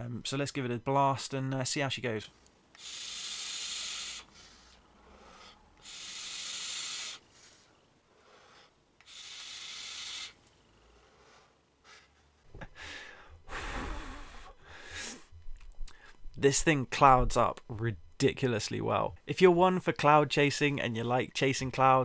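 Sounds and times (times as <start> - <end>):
soft low breathing: 3.8 - 6.4, 10.7 - 16.3.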